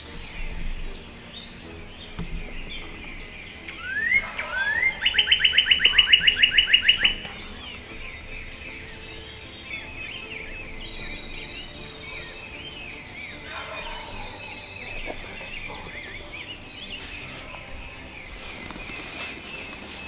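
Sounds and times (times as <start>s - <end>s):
songbirds chirping: 0.0s - 20.0s
turkey gobbling: 3.6s - 7.8s, 13.3s - 18.8s.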